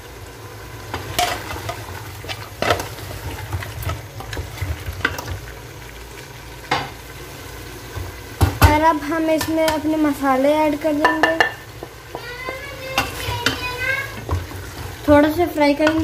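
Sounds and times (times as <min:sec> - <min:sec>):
food sizzling in a pot: 0:00.0 - 0:16.0
spoon knocking against pot: 0:11.0 - 0:13.6
wooden spoon stirring: 0:11.0 - 0:16.0.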